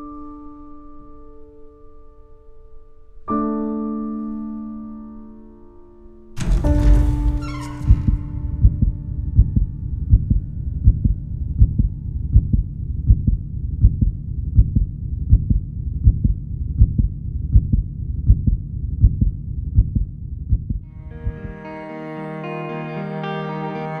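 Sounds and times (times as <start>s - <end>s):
heartbeat thumps: 6.4s - 21.6s.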